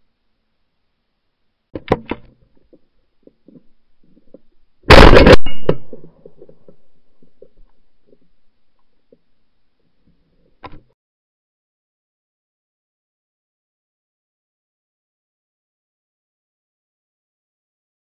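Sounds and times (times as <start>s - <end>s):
shotgun blast: 4.9s - 6.1s.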